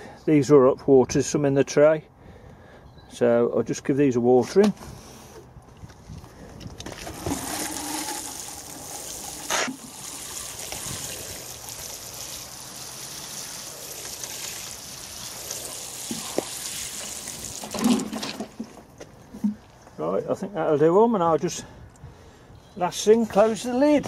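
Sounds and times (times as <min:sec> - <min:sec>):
watering can spray pattering: 0:07.0 - 0:18.8.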